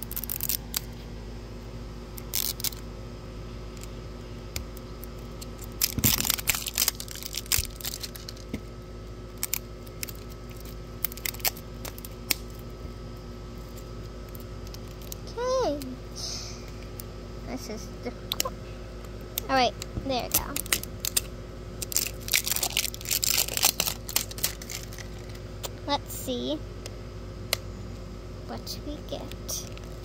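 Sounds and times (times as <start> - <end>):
seal tearing and crackling: 0.0 - 0.9, 2.2 - 2.8, 5.0 - 8.6, 9.3 - 12.6, 20.3 - 25.4
plastic and tape crinkling: 0.0 - 1.0, 2.2 - 2.8, 4.7 - 12.6, 13.6 - 15.9, 19.4 - 25.5.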